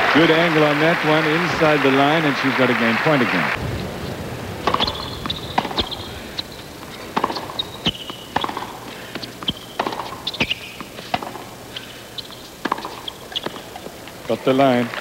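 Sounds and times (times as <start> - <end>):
racket hitting tennis ball: 4.1 - 14.8
shoe squeaks on court: 4.8 - 8.8, 9.4 - 13.6.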